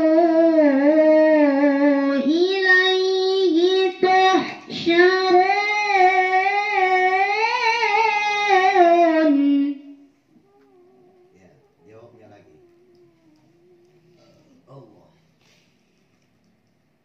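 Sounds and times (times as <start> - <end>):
woman reciting melodically: 0.0 - 15.4.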